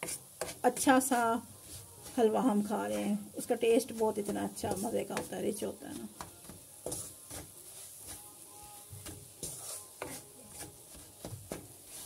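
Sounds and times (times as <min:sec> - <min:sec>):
wooden spoon scraping a pan: 0:00.0 - 0:12.0.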